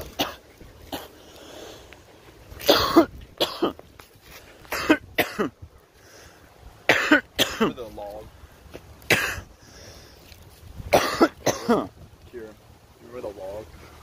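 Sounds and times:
man coughing: 2.6 - 3.8, 4.7 - 5.5, 6.9 - 7.8, 9.1 - 9.5, 10.9 - 11.9.

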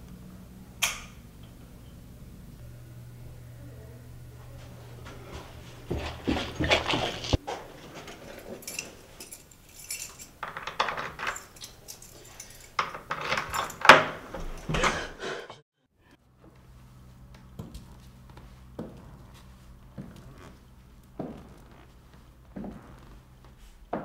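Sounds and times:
keys jangling: 7.8 - 14.9.

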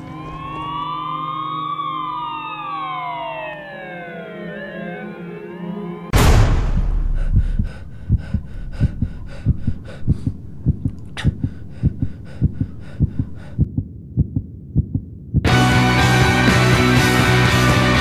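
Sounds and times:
sirens wailing: 0.0 - 6.2
loud booming hit: 6.1 - 9.7
heartbeat-like thumping: 6.2 - 15.5.

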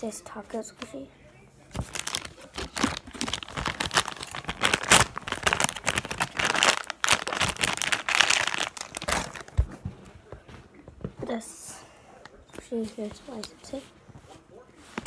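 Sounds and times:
plastic packaging crinkling: 1.7 - 9.7.

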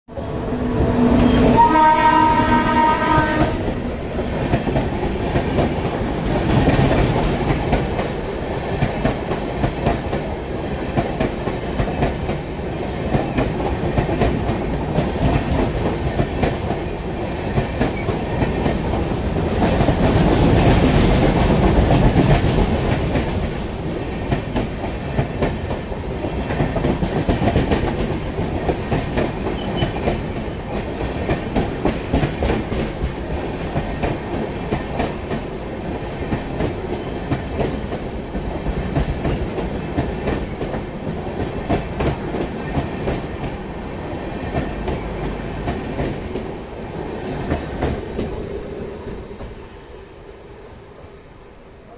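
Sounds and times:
train horn: 0.1 - 3.9
train wheels clattering: 0.7 - 12.4, 17.5 - 35.6.

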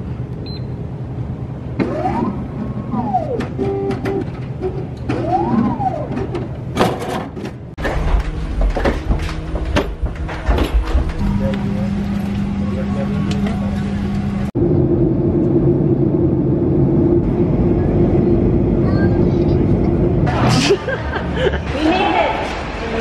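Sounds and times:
vending machine motor whirring: 1.8 - 6.8, 7.8 - 14.6
low rumble: 7.8 - 21.8.

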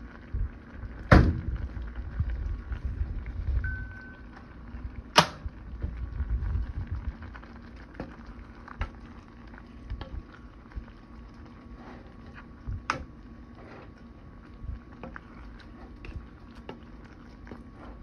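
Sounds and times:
spoon stirring thick pasta: 10.2 - 18.0.

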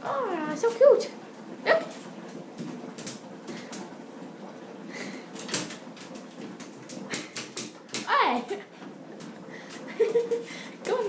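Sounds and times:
dog claws tapping on bathtub: 5.4 - 8.6.

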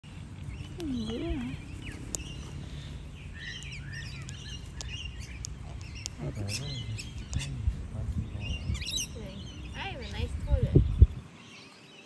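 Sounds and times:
birds chirping and whistling: 0.1 - 12.0
sharp clicks: 2.0 - 2.3, 3.5 - 6.2, 7.1 - 7.5.

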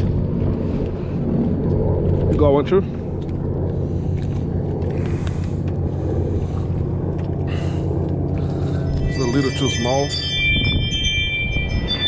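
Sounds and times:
boat motor humming: 0.0 - 12.0
wind noise on microphone: 0.0 - 12.0.

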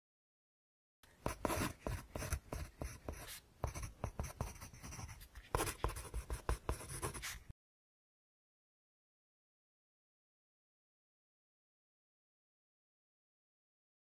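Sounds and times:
pen scratching on paper: 1.2 - 7.5.

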